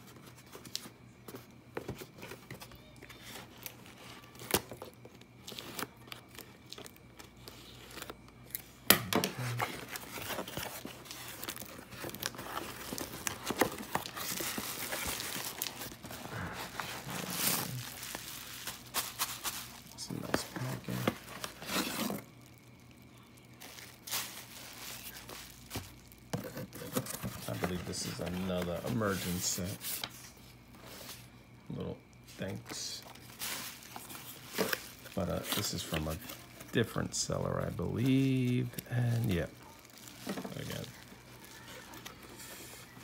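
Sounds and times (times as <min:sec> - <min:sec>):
cardboard and wrapping crinkling: 0:00.0 - 0:43.0.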